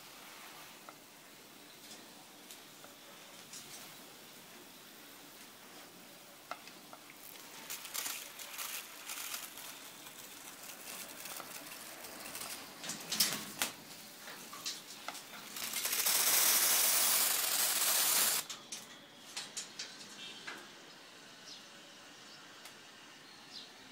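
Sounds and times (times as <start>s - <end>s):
water spray hissing: 15.5s - 18.5s.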